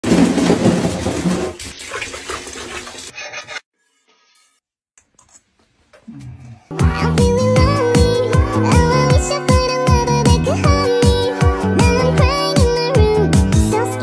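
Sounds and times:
water running into bathtub: 0.0s - 3.6s.

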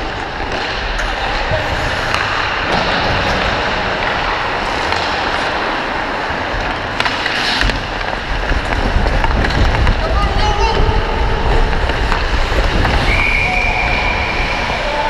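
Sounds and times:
skate blades scraping ice: 0.0s - 10.0s, 11.2s - 15.0s
wind rumble on microphone: 7.7s - 15.0s.

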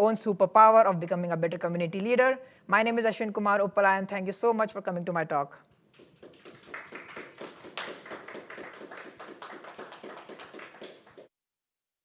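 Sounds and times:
audience applauding: 5.9s - 11.3s.

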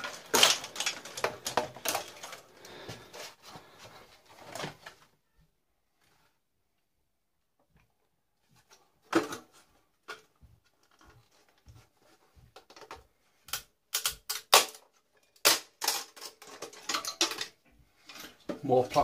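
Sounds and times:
plastic and metal parts clicking: 12.6s - 18.4s.

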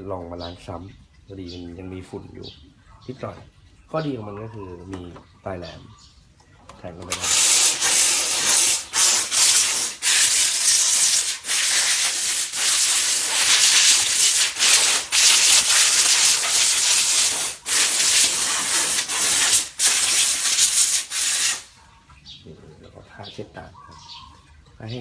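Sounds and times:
steam cleaner hissing: 7.1s - 21.7s.

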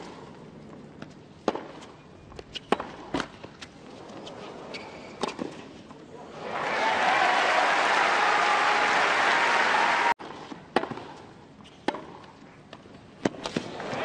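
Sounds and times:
crowd applauding: 6.4s - 10.2s
tennis racket striking ball: 10.2s - 11.2s, 11.8s - 12.3s.

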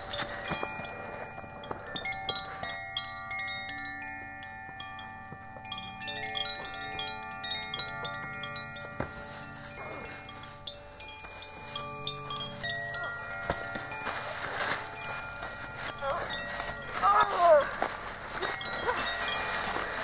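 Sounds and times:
chimes ringing: 0.0s - 20.0s.

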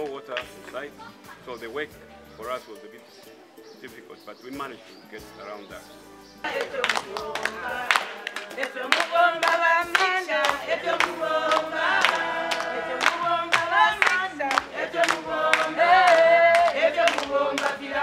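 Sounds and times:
hand-clapping beat: 0.0s - 0.8s, 6.4s - 18.0s
women singing together: 6.4s - 18.0s.

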